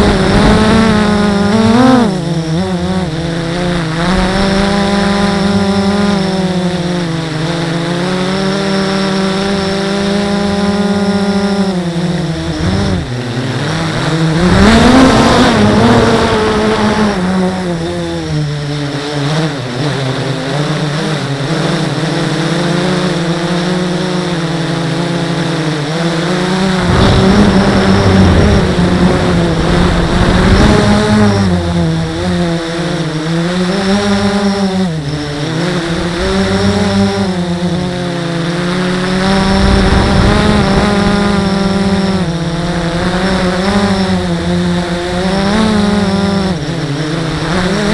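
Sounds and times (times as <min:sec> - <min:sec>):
drone motors and propellers whining: 0:00.0 - 0:47.9
low rumble: 0:26.8 - 0:32.7.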